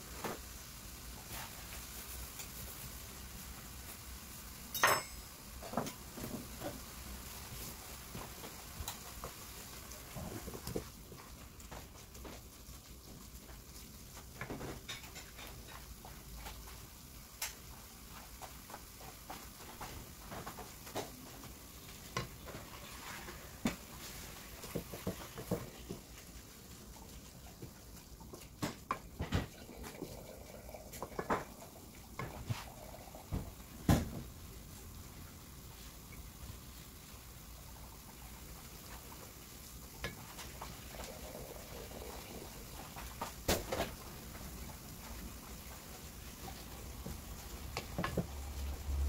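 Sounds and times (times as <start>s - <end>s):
meat sizzling: 0.0s - 49.0s
wooden spoon scraping frying pan: 18.0s - 26.3s.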